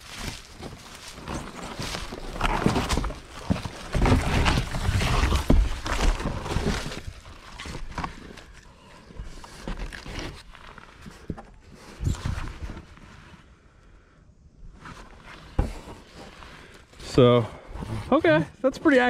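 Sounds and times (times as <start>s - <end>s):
cardboard sheet rustling: 0.0s - 13.5s.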